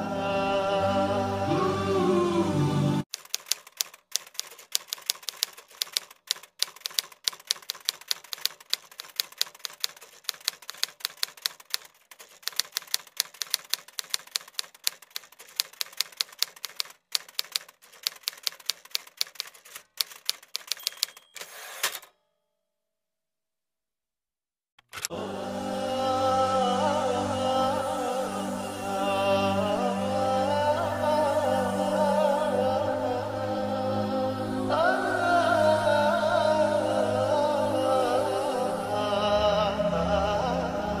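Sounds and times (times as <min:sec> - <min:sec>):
typewriter key clacks: 0:03.1 - 0:22.1.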